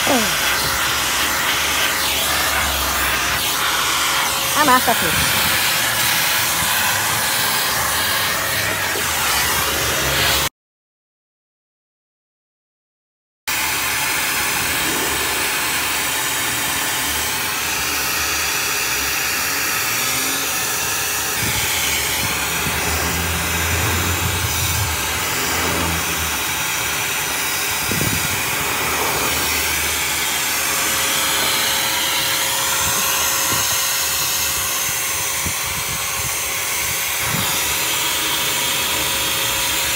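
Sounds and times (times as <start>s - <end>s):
rushing hiss of air from machine: 20.6s - 34.6s.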